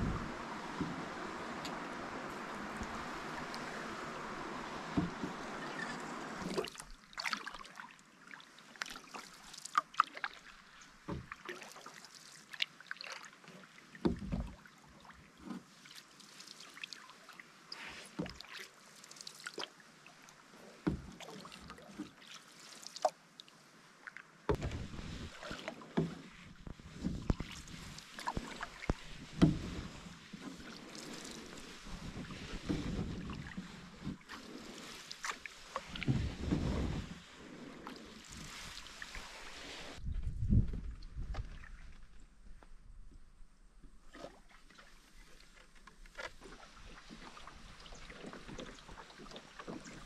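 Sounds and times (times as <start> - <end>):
low knocks and thumps: 0.0 - 5.6, 24.5 - 30.2, 31.7 - 34.4, 35.8 - 37.3, 40.0 - 41.5
paddle splashing in water: 0.0 - 42.3, 44.0 - 50.0.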